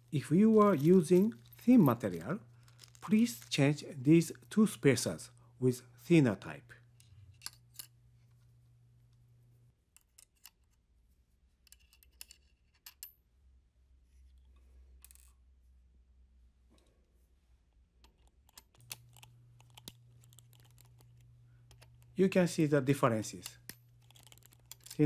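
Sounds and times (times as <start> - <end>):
screwdriver clicking and scraping: 11.6 - 13.0, 18.0 - 22.2, 23.4 - 25.0.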